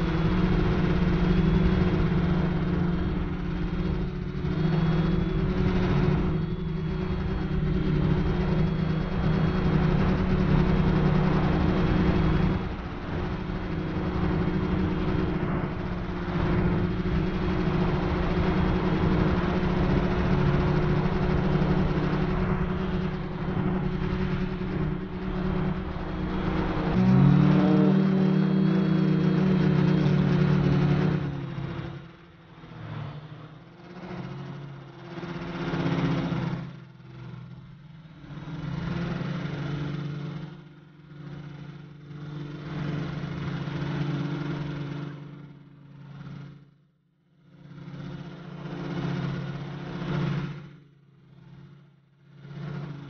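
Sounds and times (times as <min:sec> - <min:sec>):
drone propellers buzzing: 0:00.0 - 0:36.6.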